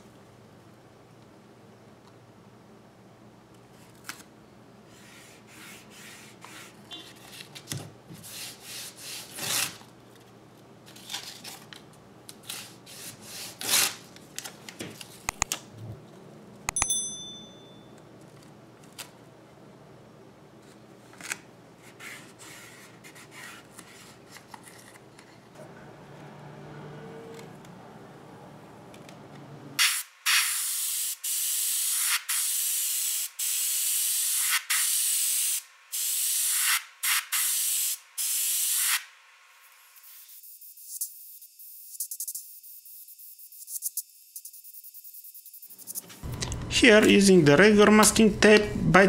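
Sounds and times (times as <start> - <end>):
masking tape rasping and tearing: 8.2 - 9.8, 12.4 - 14.1
brief ringing ping: 16.7 - 18.0.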